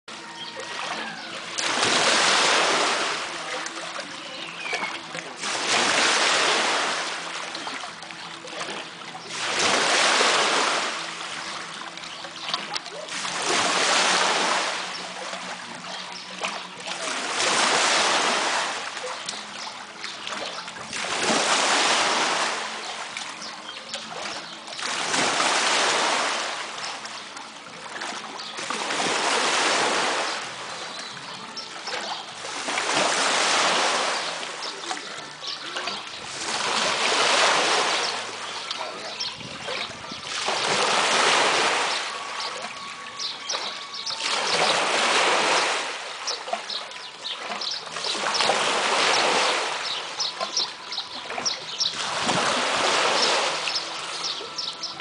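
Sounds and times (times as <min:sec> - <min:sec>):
waves washing over sand and rocks: 0:01.0 - 0:03.9, 0:04.7 - 0:07.3, 0:09.3 - 0:11.2, 0:13.1 - 0:15.0, 0:16.9 - 0:18.9, 0:20.9 - 0:22.9, 0:24.8 - 0:26.8, 0:28.7 - 0:30.6, 0:32.5 - 0:34.9, 0:35.9 - 0:38.8, 0:39.5 - 0:42.3, 0:43.6 - 0:46.2, 0:48.1 - 0:50.0, 0:52.0 - 0:55.0.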